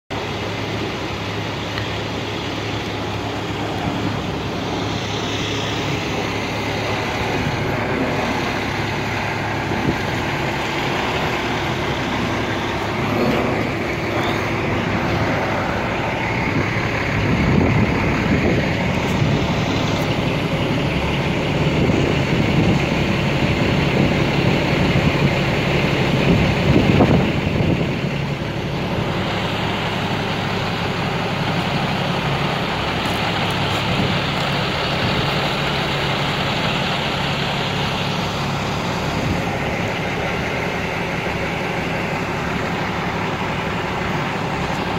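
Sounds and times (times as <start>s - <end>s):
truck diesel engines idling: 0.0s - 44.9s.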